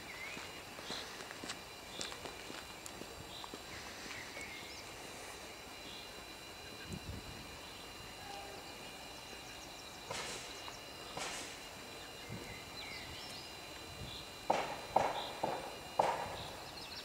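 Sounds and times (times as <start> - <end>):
small birds chirping: 0.0 - 17.0
sharp knocks: 14.5 - 16.4.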